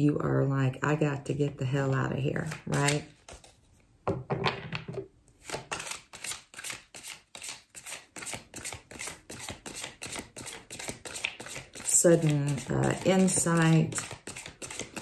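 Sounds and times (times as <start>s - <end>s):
cards shuffling: 2.4s - 3.6s, 5.4s - 15.0s.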